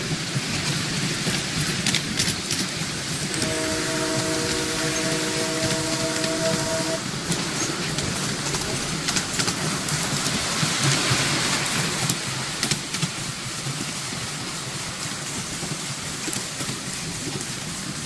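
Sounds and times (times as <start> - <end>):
miniature train rolling on track: 0.0 - 18.0
wheels clicking: 0.0 - 18.0.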